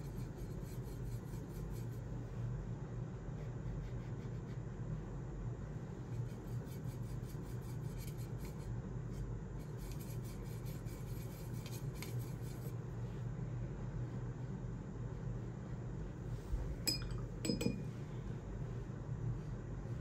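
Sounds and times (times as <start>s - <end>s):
paintbrush scrubbing in paint: 0.0s - 2.2s, 6.0s - 8.7s, 9.6s - 12.8s
steady low hum: 0.0s - 20.0s.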